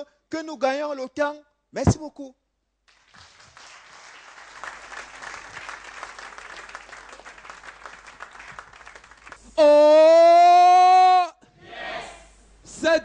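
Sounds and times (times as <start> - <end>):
audience applauding: 2.9 - 9.4.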